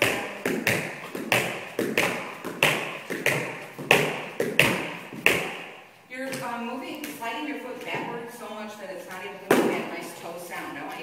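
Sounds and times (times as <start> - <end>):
tap shoes striking floor: 0.0 - 5.7.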